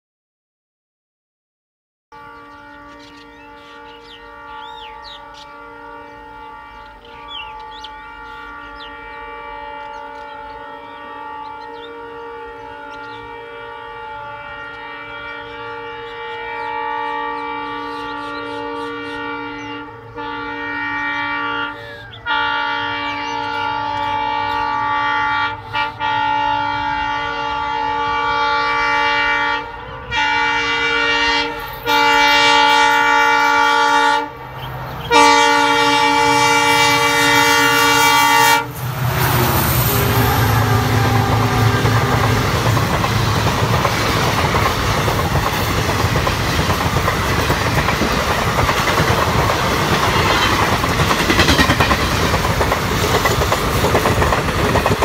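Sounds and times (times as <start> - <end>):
locomotive horn blast: 2.1 - 55.0
low train rumble: 2.2 - 55.0
birds chirping faintly: 2.3 - 13.4.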